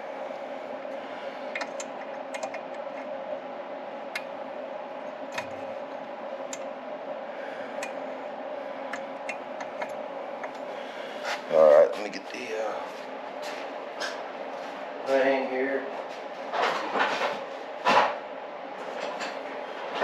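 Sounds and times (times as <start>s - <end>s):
steady background hum: 0.0s - 20.0s.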